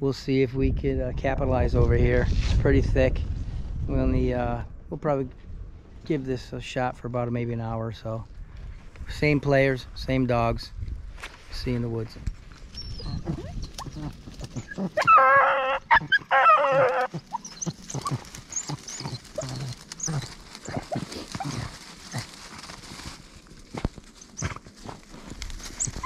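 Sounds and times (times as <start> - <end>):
dog baying: 12.8 - 22.6
twigs snapping: 16.7 - 26.0
footsteps crunching through snow: 16.8 - 26.0.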